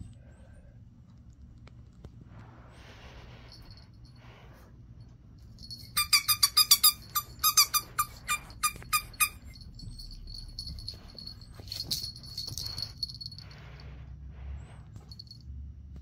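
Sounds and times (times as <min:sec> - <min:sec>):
squeaker toy squeaking: 0:05.7 - 0:09.8.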